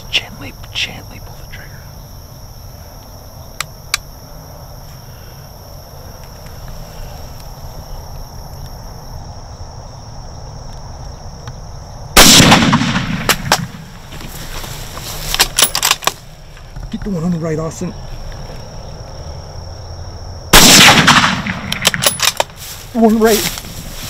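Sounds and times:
insects trilling: 0.0s - 24.0s
sharp clicks: 3.0s - 4.1s, 20.8s - 22.6s
rifle shot: 12.2s - 13.9s, 20.5s - 22.5s.

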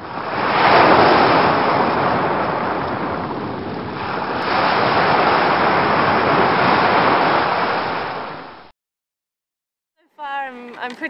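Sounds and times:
ocean waves breaking: 0.0s - 8.7s.

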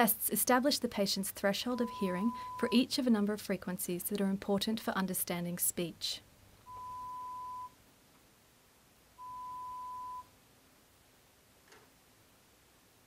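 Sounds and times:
test tone beeps: 1.7s - 2.8s, 6.7s - 7.8s, 9.2s - 10.3s.

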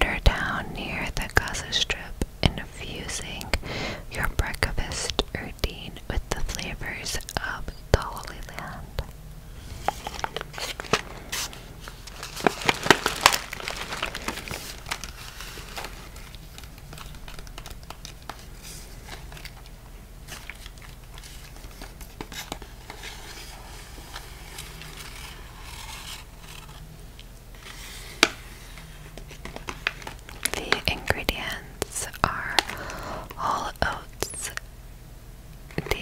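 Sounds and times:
plastic pouch crinkling: 9.7s - 28.4s, 29.1s - 33.2s.

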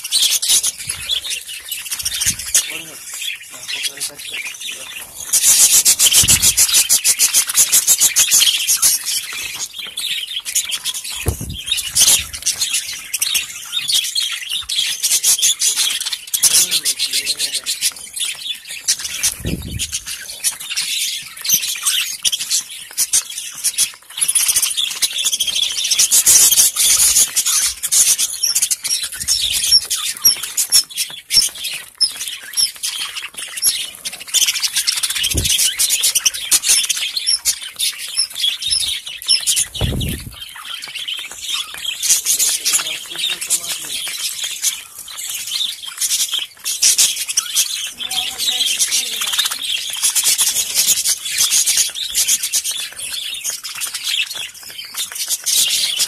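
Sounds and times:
budgerigars chattering and chirping: 0.0s - 56.0s
dull low thumps: 11.3s - 12.4s, 39.8s - 40.4s.

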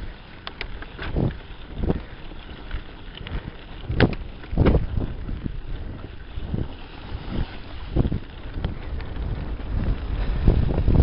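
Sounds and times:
bike knocking and rattling: 0.0s - 11.0s
wind buffeting microphone: 0.0s - 11.0s.

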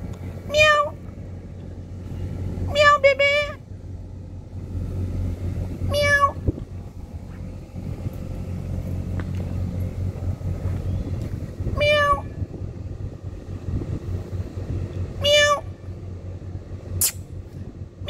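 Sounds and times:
low background rumble: 0.0s - 18.0s
cat meowing: 0.5s - 1.0s, 5.9s - 6.4s, 11.8s - 12.3s, 15.2s - 15.7s.

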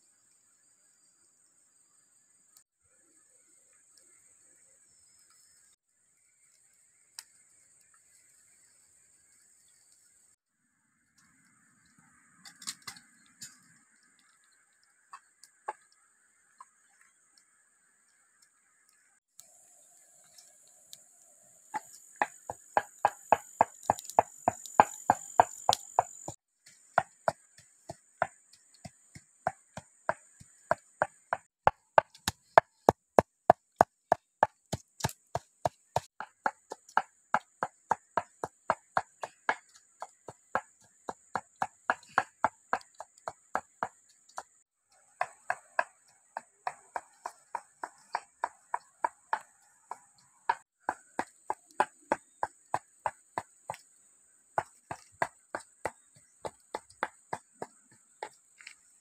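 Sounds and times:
high insect buzz: 18.2s - 26.4s.

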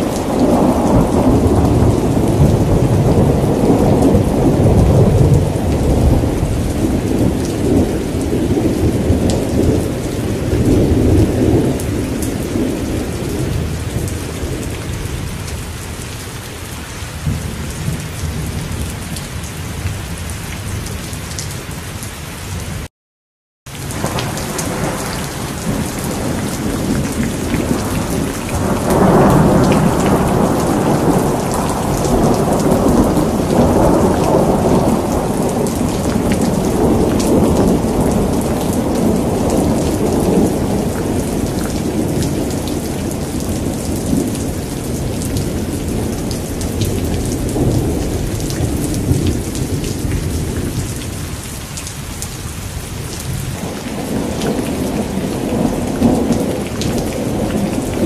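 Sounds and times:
thunder rumble: 0.0s - 15.2s, 23.8s - 51.4s
heavy rain: 0.0s - 22.9s, 23.7s - 58.0s.

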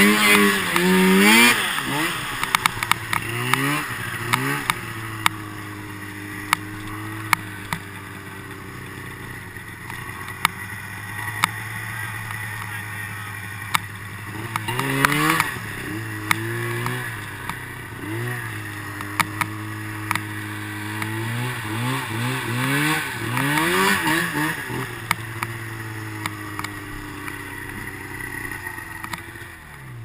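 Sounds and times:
snowmobile engine idling and revving: 0.0s - 30.0s
sharp clicks: 1.8s - 5.4s.

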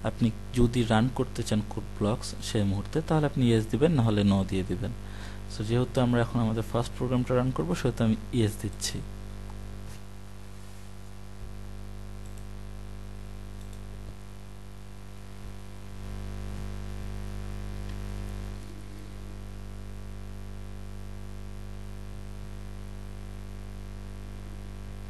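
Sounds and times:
electrical hum with hiss: 0.0s - 25.0s
faint clicks: 12.2s - 12.5s, 13.6s - 14.2s.

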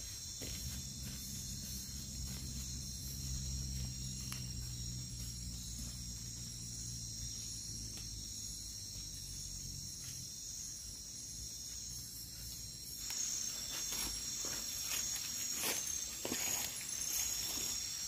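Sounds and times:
crunching footsteps: 0.0s - 4.7s, 13.0s - 18.0s
night insects chorus: 0.0s - 18.0s
leaves and undergrowth rustling: 11.7s - 18.0s.

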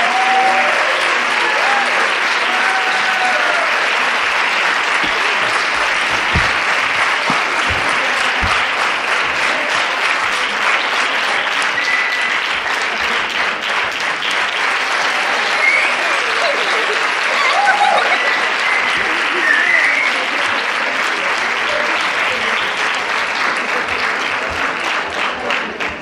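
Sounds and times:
audience applauding: 0.0s - 26.0s
low thuds: 4.9s - 9.0s.

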